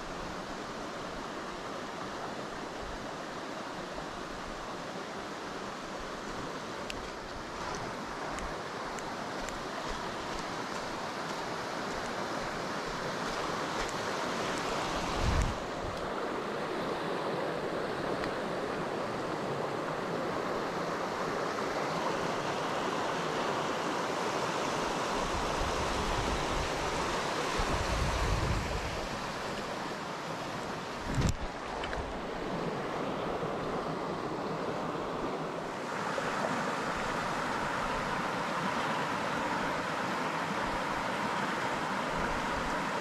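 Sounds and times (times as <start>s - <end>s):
stream rushing over rocks: 0.0s - 43.0s
wind rumble on microphone: 14.8s - 16.1s, 25.2s - 29.3s, 31.0s - 34.0s.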